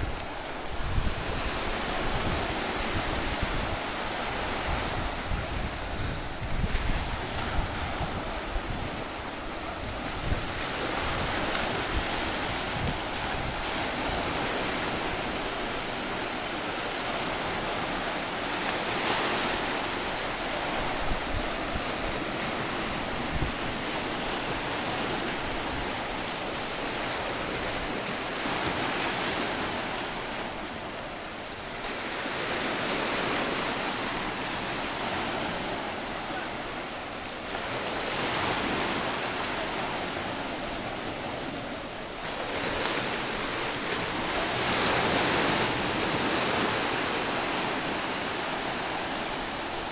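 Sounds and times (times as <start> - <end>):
wind buffeting microphone: 0.0 - 16.4, 19.0 - 30.2
waves breaking on beach: 0.0 - 49.9.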